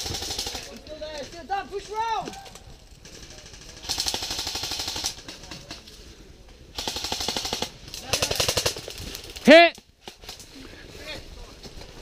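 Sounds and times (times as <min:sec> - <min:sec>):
airsoft guns firing full auto: 0:00.0 - 0:00.8, 0:03.0 - 0:05.4, 0:06.8 - 0:10.4.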